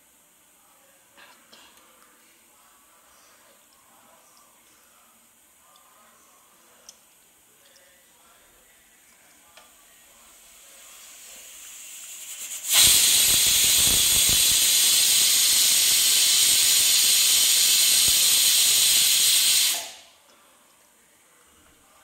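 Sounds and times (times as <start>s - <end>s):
pressure cooker whistle hissing: 11.7s - 20.1s.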